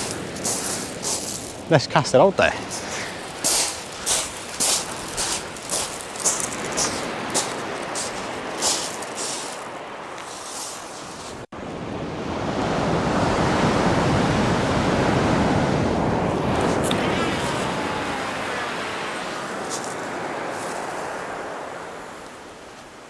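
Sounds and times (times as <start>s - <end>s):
wind on microphone: 2.6s - 23.0s
surf breaking on shingle: 2.8s - 9.6s.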